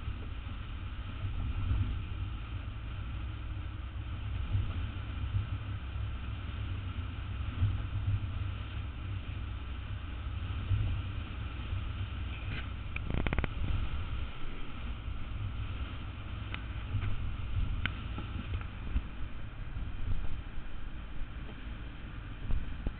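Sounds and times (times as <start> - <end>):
low rumble of traffic: 0.0 - 22.9
wind buffeting microphone: 10.4 - 22.9.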